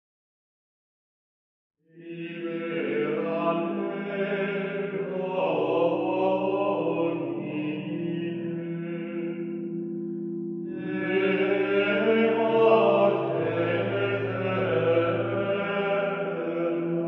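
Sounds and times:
steady drone: 2.1s - 17.0s
low voices chanting: 10.8s - 17.0s.

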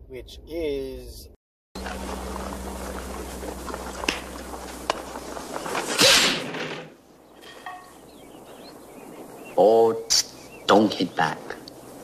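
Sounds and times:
hum and hiss: 1.8s - 6.5s.

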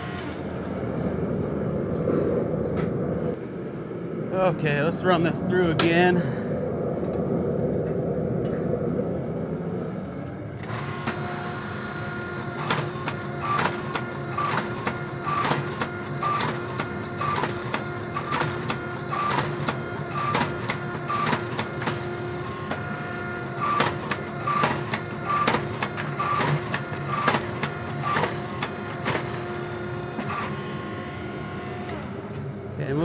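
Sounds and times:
rushing noise: 0.0s - 10.9s
forging press motor hum: 10.6s - 32.8s.

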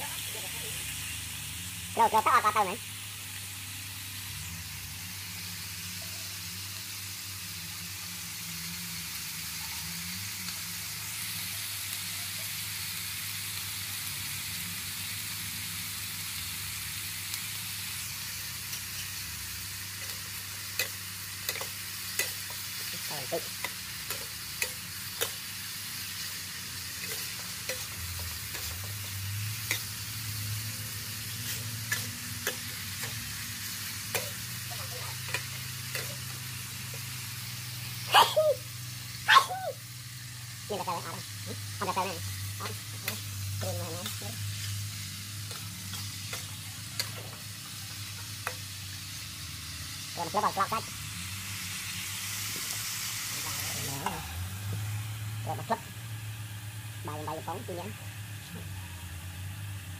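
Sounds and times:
eel sizzling in a wok: 0.0s - 59.9s
metal spatula scraping a wok: 20.0s - 37.2s, 44.0s - 48.6s.

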